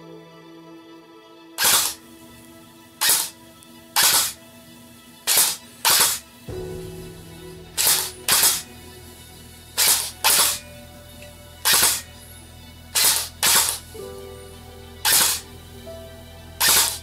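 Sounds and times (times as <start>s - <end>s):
quiet background music: 0.0s - 17.0s
airsoft gun single shots: 1.6s - 2.0s, 3.0s - 3.3s, 4.0s - 4.4s, 5.3s - 6.2s, 11.7s - 12.0s, 15.1s - 15.4s.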